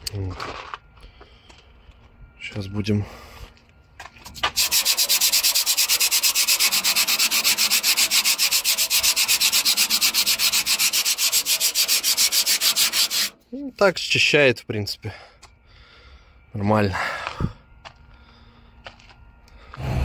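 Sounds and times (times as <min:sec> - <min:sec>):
sandpaper rubbing on metal: 0:04.4 - 0:13.4.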